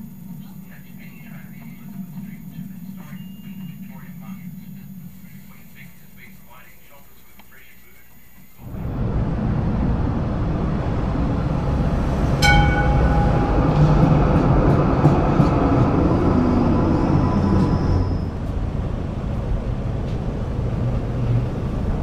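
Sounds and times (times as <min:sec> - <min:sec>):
tram wheels rumbling on rails: 0:00.0 - 0:06.9, 0:08.6 - 0:22.0
bell ring: 0:12.3 - 0:14.6.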